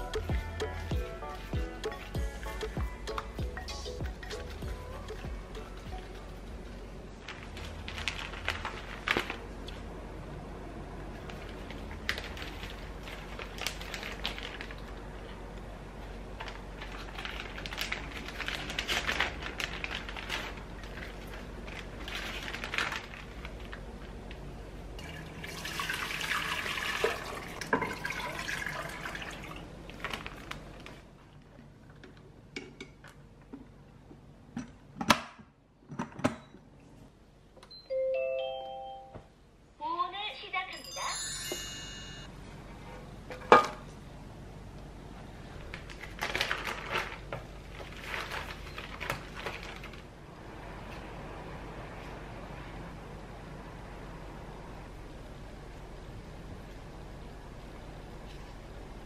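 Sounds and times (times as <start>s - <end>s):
plastic bag rustling: 7.1s - 9.9s, 11.1s - 15.4s, 16.0s - 24.2s, 29.9s - 31.3s, 45.5s - 50.2s
water pouring into pot: 25.0s - 29.6s.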